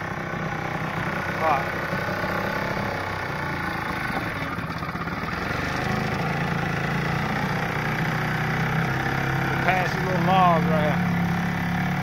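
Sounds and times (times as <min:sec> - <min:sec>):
outboard motor running: 0:00.0 - 0:12.0.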